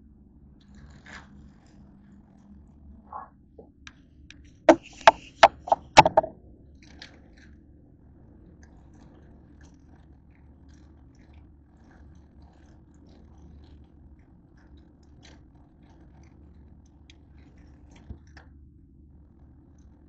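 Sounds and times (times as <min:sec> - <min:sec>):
sharp knocks and clicks on countertop: 0:04.7 - 0:06.3.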